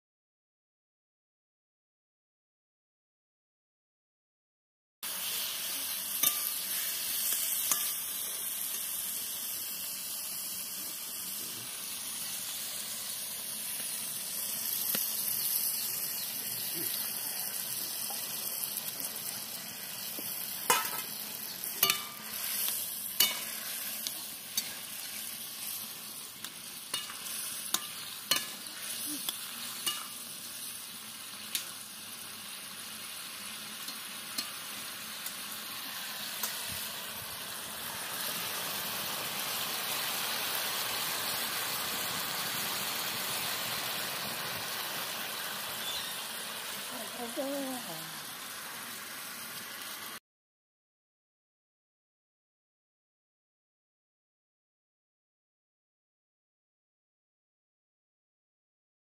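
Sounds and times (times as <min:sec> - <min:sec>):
vegetables sizzling in a wok: 0:05.0 - 0:50.2
metal spatula scraping a pan: 0:06.1 - 0:08.8, 0:20.7 - 0:26.2, 0:26.8 - 0:30.7.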